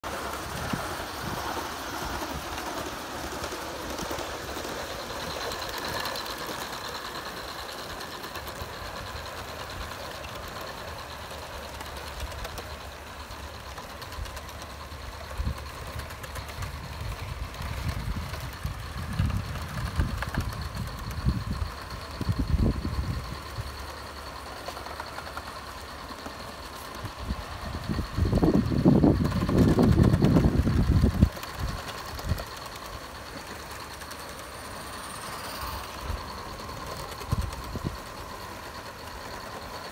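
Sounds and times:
faint high whine: 0:00.0 - 0:39.9
model trains rattling and whirring: 0:00.0 - 0:39.9.

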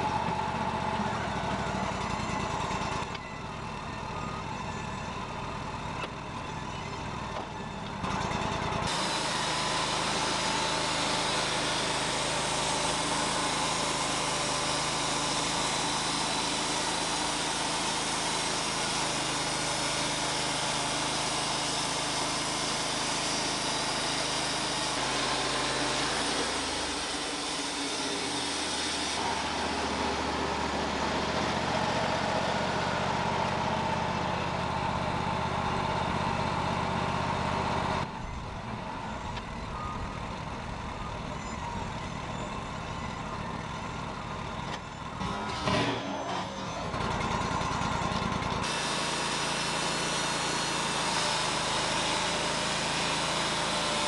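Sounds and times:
sawmill engine running: 0:00.0 - 0:54.0
band saw cutting log: 0:07.4 - 0:35.3, 0:44.6 - 0:54.0.

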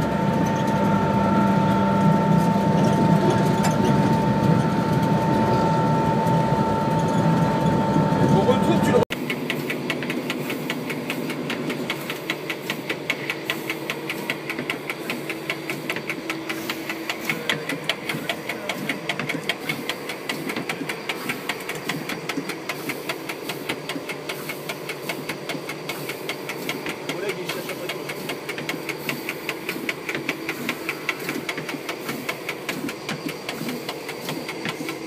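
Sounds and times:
steady mechanical hum: 0:00.0 - 0:35.0
rapid even clicking: 0:09.1 - 0:35.0.

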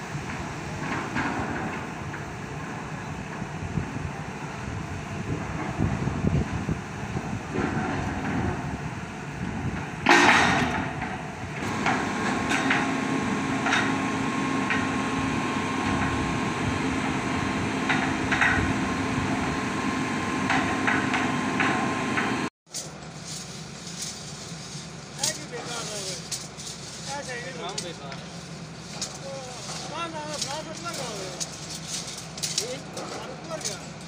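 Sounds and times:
piling rig engine running: 0:00.0 - 0:34.0
steady whine: 0:00.0 - 0:34.0
loud metallic clatter: 0:07.4 - 0:19.6, 0:20.4 - 0:34.0
metallic knocks and clanks: 0:09.5 - 0:14.9, 0:17.8 - 0:18.8, 0:20.4 - 0:24.3.

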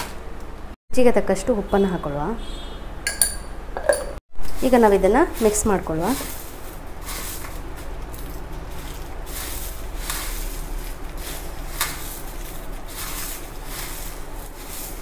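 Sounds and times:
rice flakes rustling and crunching: 0:04.4 - 0:15.0.

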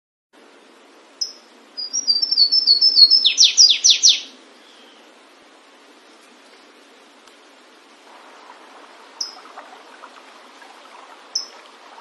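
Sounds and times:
faint steady hiss: 0:00.4 - 0:12.0
warbler singing: 0:01.2 - 0:05.1, 0:08.4 - 0:12.0.

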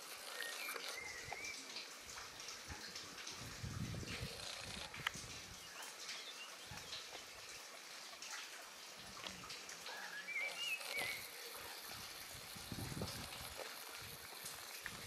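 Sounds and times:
wild birds singing: 0:00.2 - 0:01.8, 0:05.5 - 0:07.6, 0:09.3 - 0:12.0.

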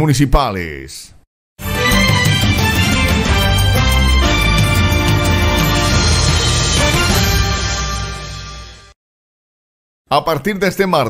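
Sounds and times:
theme music with strong bass: 0:01.6 - 0:09.0.

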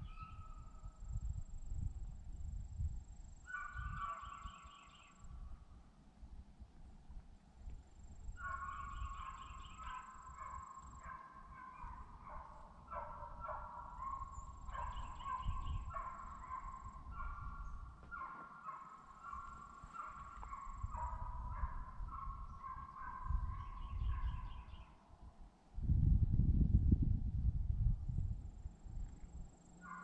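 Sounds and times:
gusty low rumble: 0:00.0 - 0:03.2, 0:23.2 - 0:29.5
hounds baying: 0:03.5 - 0:05.0, 0:08.4 - 0:24.8, 0:29.8 - 0:30.0.

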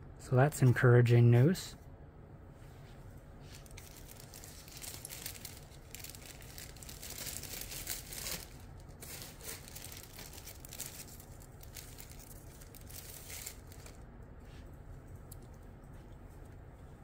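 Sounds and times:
plastic bags crinkling: 0:03.5 - 0:14.0.

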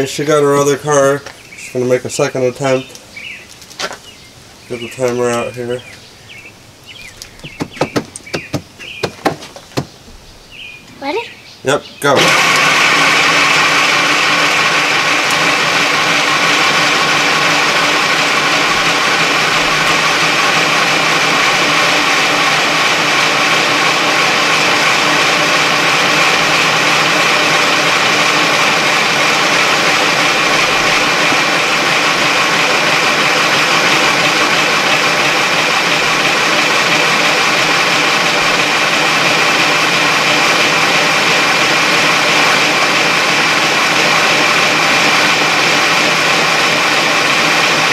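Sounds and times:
plastic wheels spinning on asphalt: 0:12.2 - 0:47.9.

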